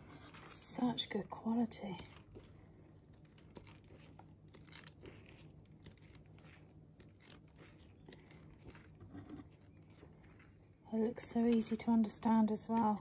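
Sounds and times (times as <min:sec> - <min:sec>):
small clicks and crackles: 0:00.0 - 0:13.0
glossy pages rustling: 0:01.7 - 0:11.8.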